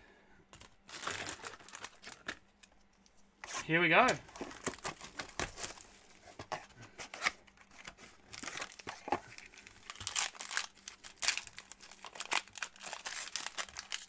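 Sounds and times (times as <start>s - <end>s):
foil wrapper crinkling: 0.6s - 2.5s, 4.0s - 6.2s, 7.1s - 14.0s.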